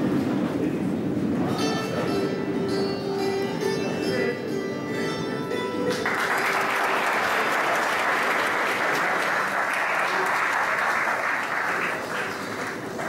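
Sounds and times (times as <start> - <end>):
instrumental music: 1.5 - 6.1
audience applauding: 5.9 - 13.0.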